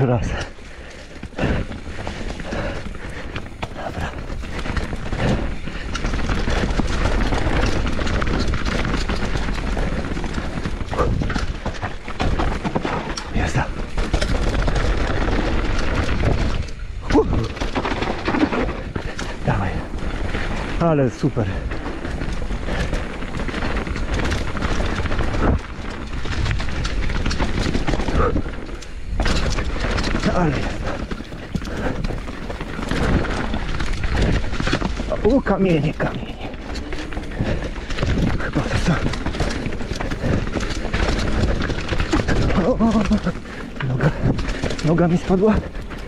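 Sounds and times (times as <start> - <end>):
bike rattling and clattering: 0.0 - 46.0
tyres crunching over stones: 0.0 - 46.0.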